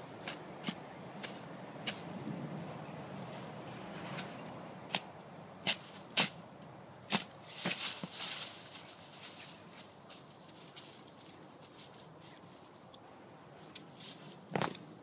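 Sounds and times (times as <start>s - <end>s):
dry leaves crackling and rustling: 7.1s - 12.9s, 13.6s - 15.0s.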